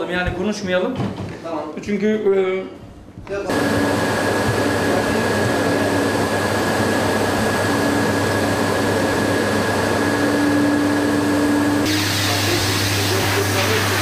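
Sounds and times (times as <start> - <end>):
carpet vacuum running: 3.5 - 14.0.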